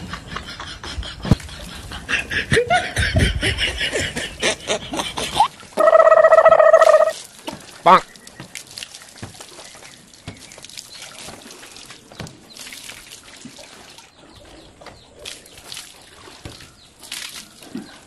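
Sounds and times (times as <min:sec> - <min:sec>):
water pouring and splashing: 0:05.2 - 0:18.0.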